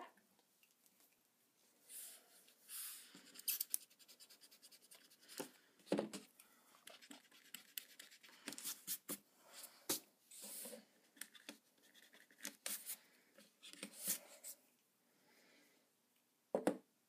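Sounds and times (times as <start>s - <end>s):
pencil scratching on paper: 3.0s - 5.5s, 6.8s - 9.2s, 11.4s - 13.0s.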